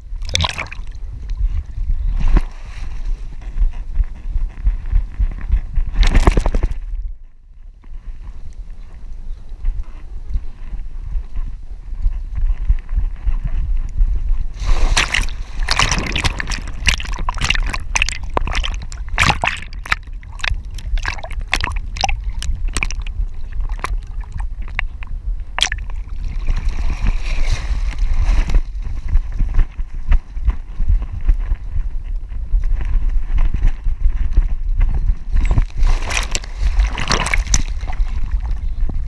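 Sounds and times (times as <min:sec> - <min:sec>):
splashing: 0:00.2 - 0:01.0, 0:14.6 - 0:24.9, 0:25.5 - 0:28.0, 0:35.8 - 0:38.6
low rumble of dog running: 0:00.9 - 0:39.0
rustling through reeds: 0:14.4 - 0:29.9, 0:35.3 - 0:39.0.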